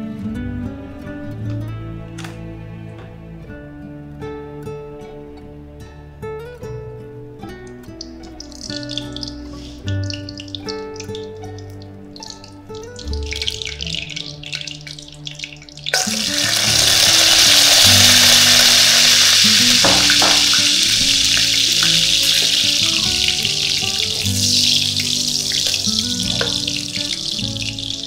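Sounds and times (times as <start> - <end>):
spices sizzling in hot oil: 7.9 - 28.0.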